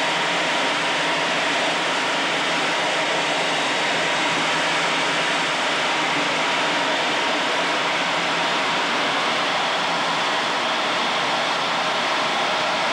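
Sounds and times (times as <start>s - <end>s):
jet cockpit airflow and engine rush: 0.0s - 12.9s.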